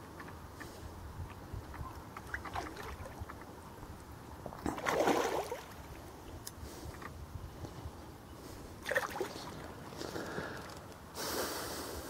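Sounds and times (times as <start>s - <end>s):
small water sounds: 0.0s - 7.2s, 8.8s - 11.0s
fish splashing in water: 4.6s - 6.0s, 8.8s - 9.7s.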